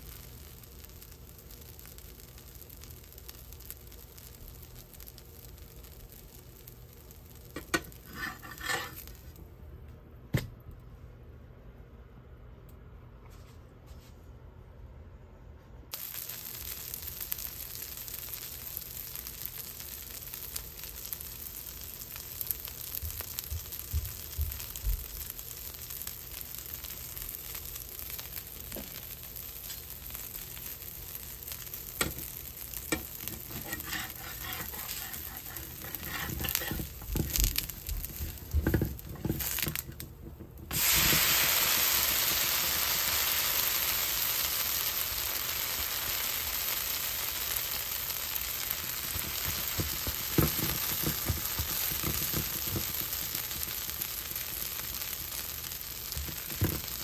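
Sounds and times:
batter sizzling on hot pan: 0:00.0 - 0:09.4, 0:15.9 - 0:57.0
metal spatula scraping pan: 0:07.6 - 0:09.1, 0:32.9 - 0:37.4.

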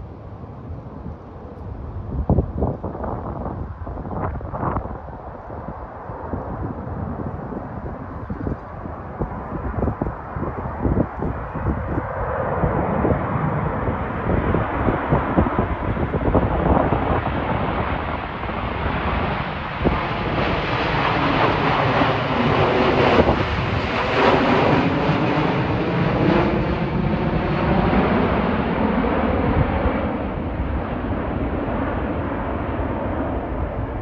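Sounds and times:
jet airliner passing overhead: 0:00.0 - 0:34.0
wind buffeting microphone: 0:00.0 - 0:34.0.

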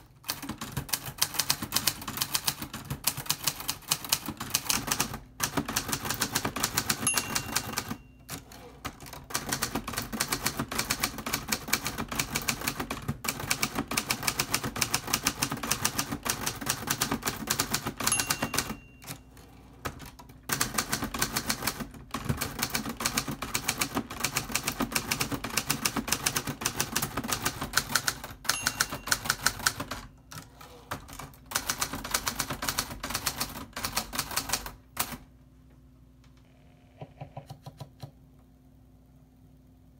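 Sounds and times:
typewriter keys clacking: 0:00.0 - 0:19.3, 0:19.9 - 0:35.2
typewriter carriage return: 0:00.0 - 0:35.2
typewriter margin bell ringing: 0:06.8 - 0:08.7, 0:17.9 - 0:19.3, 0:28.4 - 0:30.2.

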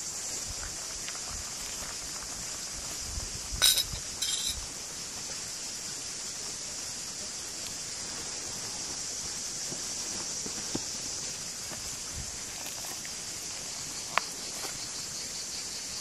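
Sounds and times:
steady high hiss: 0:00.0 - 0:16.0
spoon clinking on dishes: 0:03.6 - 0:04.6.

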